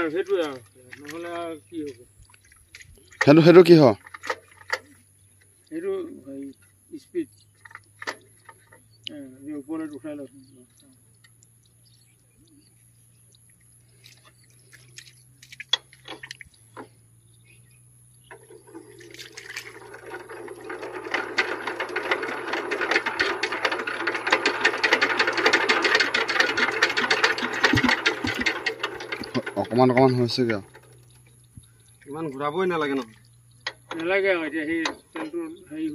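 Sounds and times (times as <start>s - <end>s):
faint clicks: 9.8s - 16.9s
diesel engine cranking and clattering: 17.8s - 35.3s.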